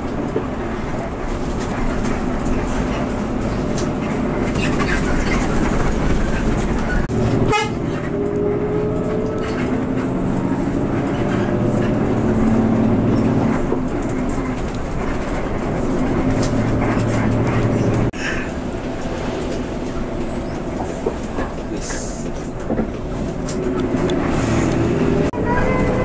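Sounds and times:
bus diesel engine: 0.0 - 26.0
road noise: 0.0 - 26.0.

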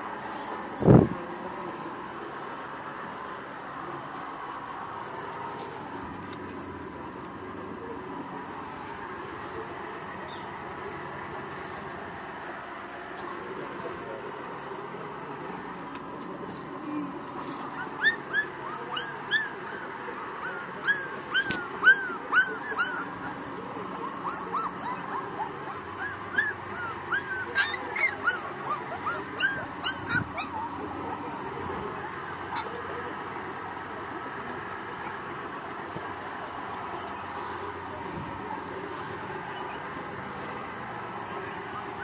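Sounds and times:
puppies whimpering: 17.6 - 33.2, 41.6 - 42.0.

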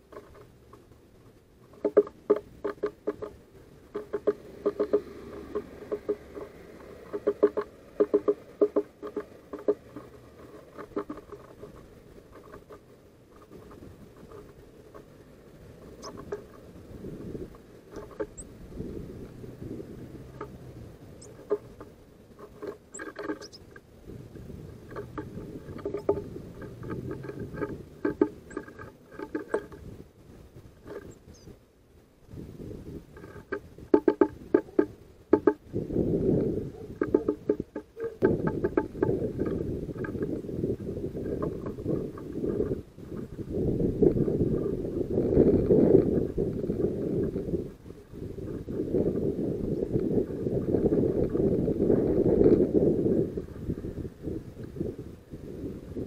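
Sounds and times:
bird beak tapping on wood: 0.1 - 0.8, 1.7 - 15.2, 15.8 - 16.7, 17.4 - 18.5, 19.3 - 23.8, 24.8 - 29.8, 33.2 - 35.7, 36.7 - 40.5.

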